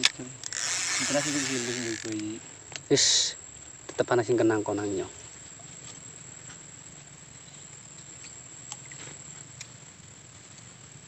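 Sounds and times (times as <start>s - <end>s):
insects chirring: 0.0s - 11.0s
faint ticks: 5.4s - 10.9s.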